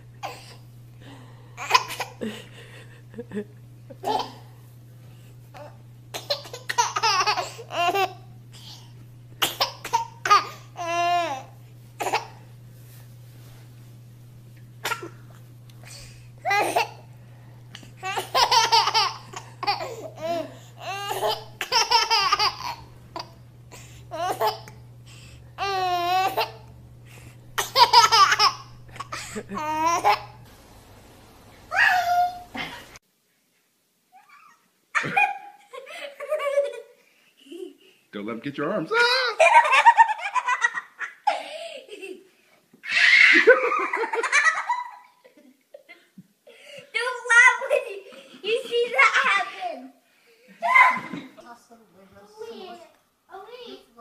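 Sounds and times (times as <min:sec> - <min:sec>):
faint low hum: 0:00.0 - 0:33.0
baby laughing and babbling: 0:01.6 - 0:02.2, 0:03.9 - 0:04.5, 0:05.6 - 0:12.4, 0:15.8 - 0:17.1, 0:18.0 - 0:26.7, 0:27.6 - 0:30.4.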